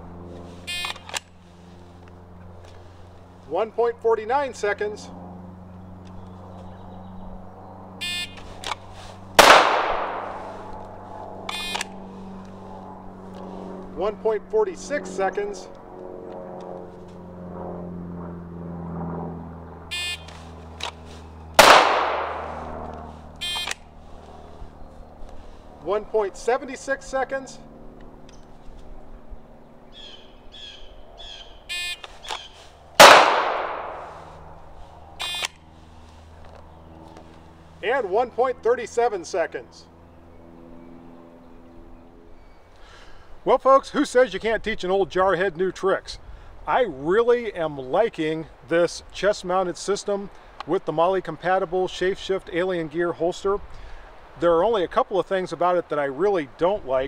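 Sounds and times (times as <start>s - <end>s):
birds chirping: 2.4s - 15.8s, 19.4s - 43.5s
pistol shot with echo: 9.4s - 10.5s, 21.6s - 22.6s, 33.0s - 34.1s.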